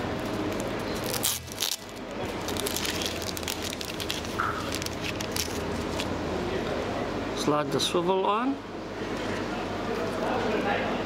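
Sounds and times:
plastic packet crinkling: 0.2 - 6.1.

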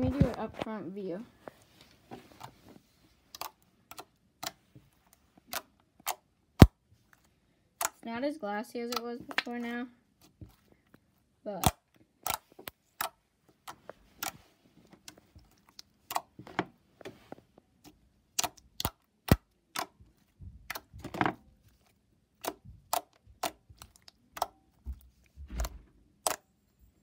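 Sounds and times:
slime squishing: 2.3 - 8.0, 8.9 - 26.5
slime clicking and popping: 11.6 - 14.4, 15.0 - 16.3, 18.3 - 20.0, 22.4 - 24.6, 26.2 - 26.4.

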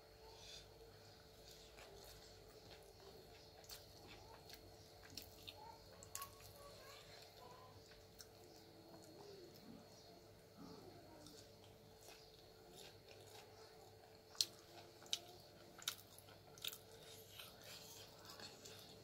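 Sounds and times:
faint steady hum: 0.0 - 19.0
chewing: 0.9 - 19.0.

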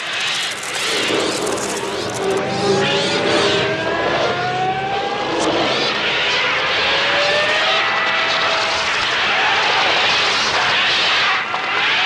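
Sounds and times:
wings flapping: 0.0 - 2.4
drawn-out rising tones: 0.0 - 11.2.

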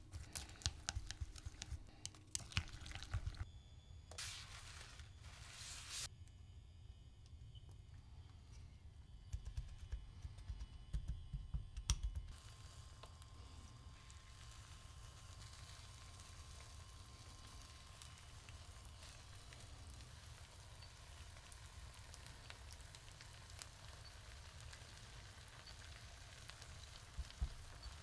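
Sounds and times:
egg sizzling in a pan: 0.1 - 3.5, 12.3 - 28.0
tiny crackles: 0.1 - 3.5, 12.3 - 28.0.

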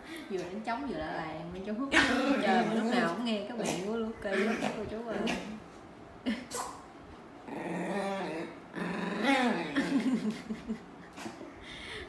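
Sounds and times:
dogs growling in play: 7.4 - 10.4.

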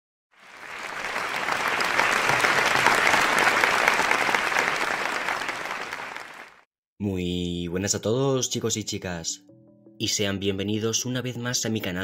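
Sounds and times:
crowd applauding: 0.4 - 6.7.

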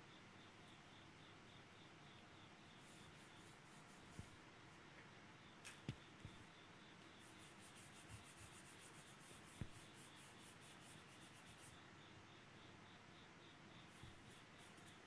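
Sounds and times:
pencil hatching on paper: 7.2 - 11.7.

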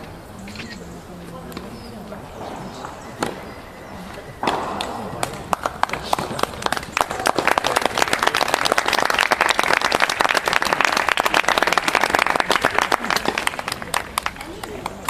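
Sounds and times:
people applauding: 4.4 - 15.0.

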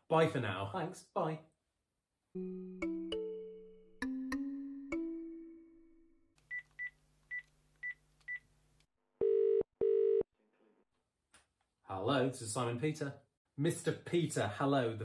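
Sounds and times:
piano notes: 2.4 - 6.2.

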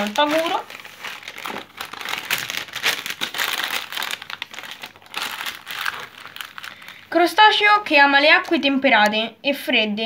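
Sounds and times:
magazine pages rustling: 0.0 - 7.1
foil packets crinkling: 0.0 - 7.5.

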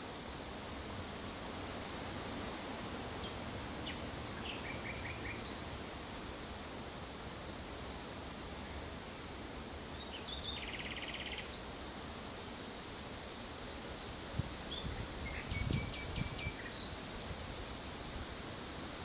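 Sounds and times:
background hiss: 0.0 - 19.0
nightingale singing: 14.7 - 17.0.

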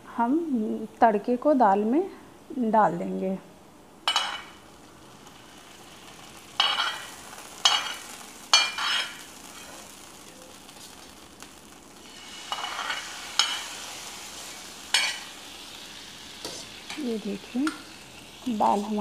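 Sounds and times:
hot oil sizzling: 4.0 - 19.0.

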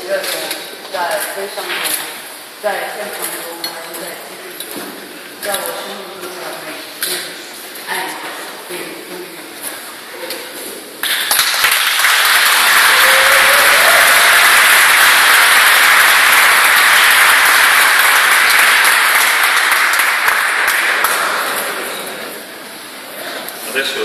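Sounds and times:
crowd applauding: 11.0 - 21.9.

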